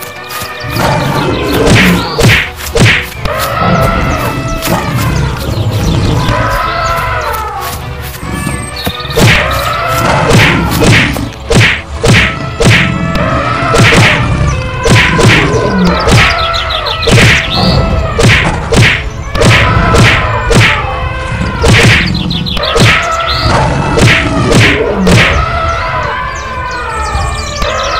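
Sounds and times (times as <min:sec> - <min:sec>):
cartoon whacks and thuds: 0:01.6 - 0:03.4, 0:09.1 - 0:13.0, 0:13.7 - 0:14.2, 0:14.9 - 0:16.3, 0:17.1 - 0:17.6, 0:18.2 - 0:20.8, 0:21.6 - 0:23.2, 0:24.0 - 0:25.4.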